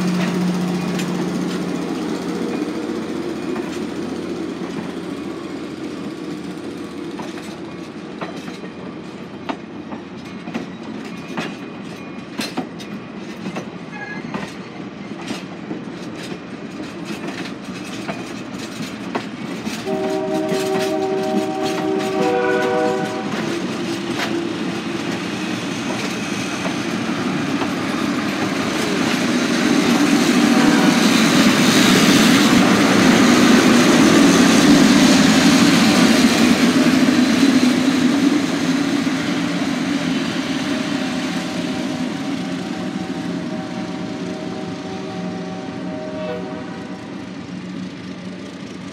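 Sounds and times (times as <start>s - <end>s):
train wheels clicking over rail joints: 0.0s - 44.7s
diesel locomotive engine: 0.0s - 48.9s
train horn: 19.8s - 24.7s, 41.4s - 47.4s.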